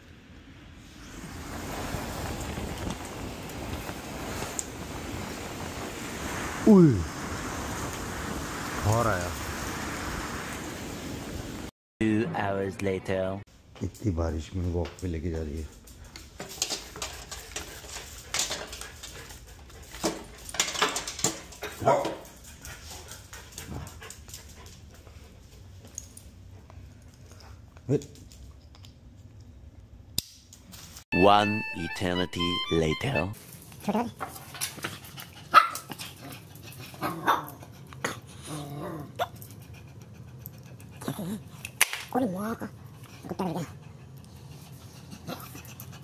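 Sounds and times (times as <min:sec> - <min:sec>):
dog barking: 0:21.8 - 0:22.2, 0:35.5 - 0:35.9.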